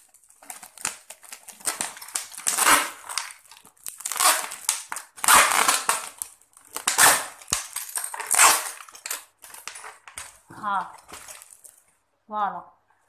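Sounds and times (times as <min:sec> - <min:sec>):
plastic bottle crinkling: 0:00.0 - 0:12.0
adhesive tape pulled off roll: 0:00.7 - 0:07.6.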